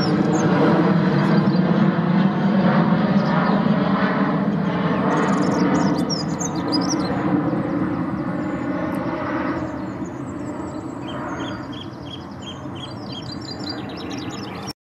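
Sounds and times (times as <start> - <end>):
bird warbling song: 4.5 - 14.7.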